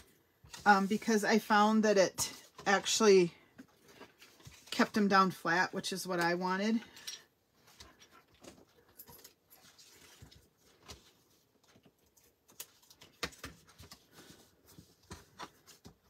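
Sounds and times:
cardstock rustling and tapping: 9.9 - 16.0.

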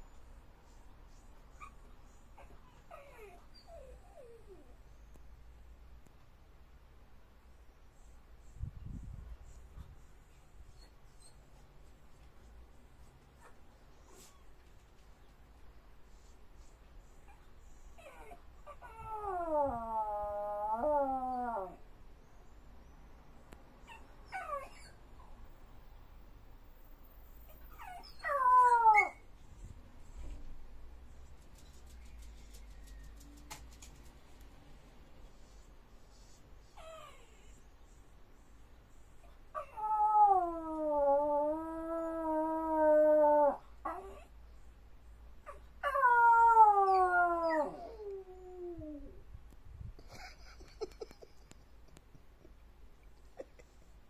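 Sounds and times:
dog whining: 1.5 - 4.7, 27.5 - 29.2.

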